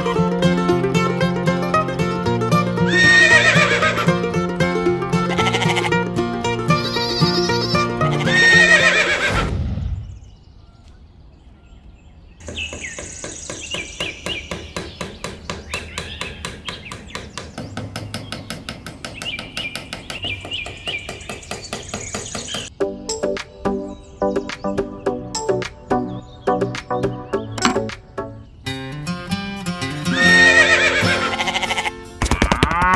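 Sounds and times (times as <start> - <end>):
music with plucked beat: 0.0 - 8.4
background music: 0.0 - 9.3, 22.7 - 32.9
horse whinny: 2.9 - 4.1, 6.9 - 9.5, 30.1 - 32.9.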